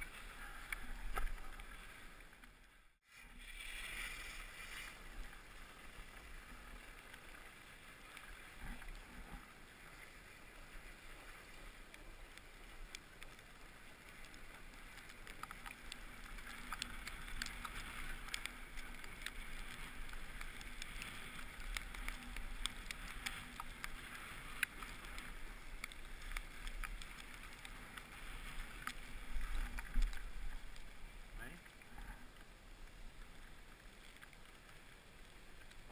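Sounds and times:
skis scraping over snow: 3.1 - 31.2.

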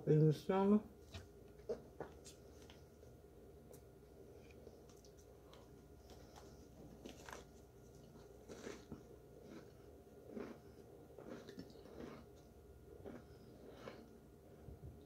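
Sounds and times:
chewing crunches: 4.4 - 14.2.

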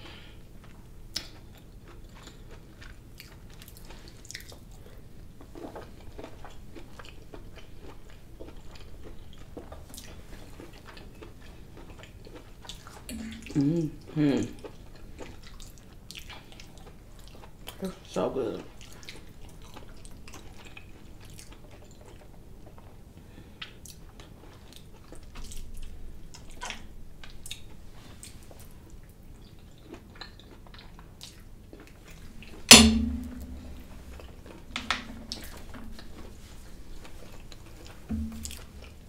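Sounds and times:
close chewing: 0.6 - 22.8, 23.6 - 32.4.

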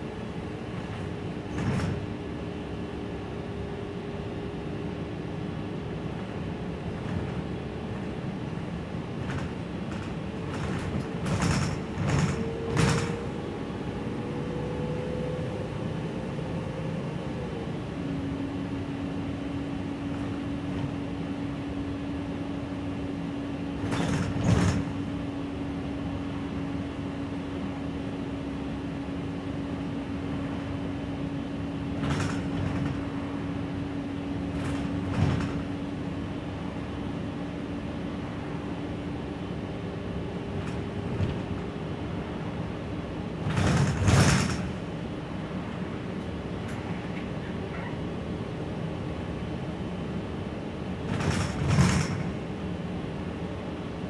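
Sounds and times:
bus engine running noise: 0.0 - 54.0
sharp knocks and rattles: 43.4 - 44.8.

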